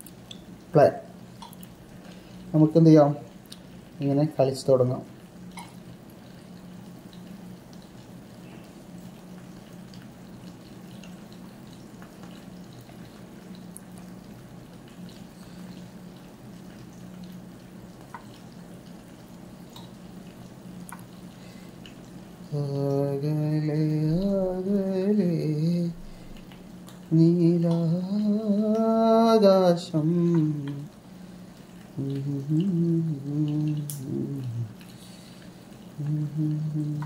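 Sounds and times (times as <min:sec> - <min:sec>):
steady low hum: 0:00.0 - 0:37.0
man humming a tune: 0:22.5 - 0:26.2, 0:27.1 - 0:30.9, 0:32.0 - 0:34.8, 0:36.0 - 0:37.0.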